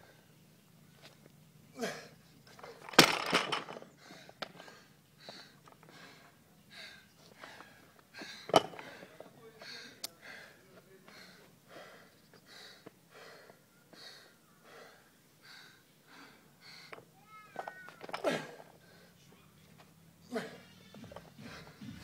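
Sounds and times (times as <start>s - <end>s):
person breathing hard: 4.0s - 17.0s, 21.4s - 22.0s
barbell plates clanking: 8.4s - 9.2s.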